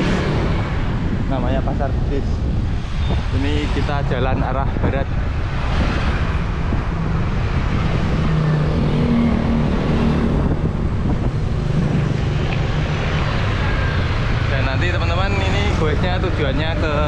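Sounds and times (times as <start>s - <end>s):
wind rushing on microphone: 0.0s - 17.0s.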